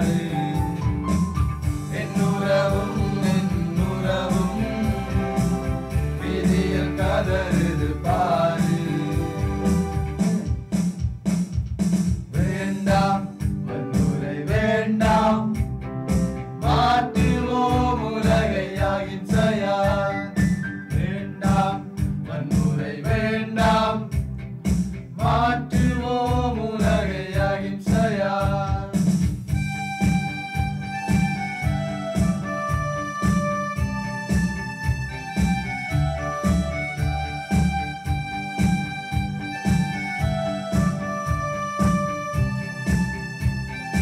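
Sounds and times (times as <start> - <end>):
person singing: 0.0 - 1.1, 1.9 - 10.6, 12.4 - 15.6, 16.6 - 24.1
beat and instrumental accompaniment: 0.0 - 44.0.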